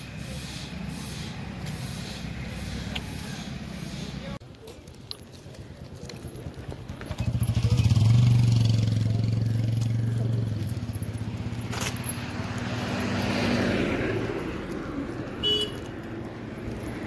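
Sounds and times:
car tyre noise on road: 0.0 - 4.5, 5.2 - 17.0
vehicle engine passing: 6.8 - 17.0.

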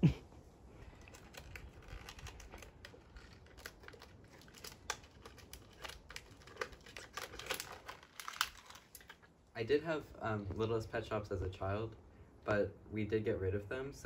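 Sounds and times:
plastic packaging crinkling: 0.8 - 9.4.

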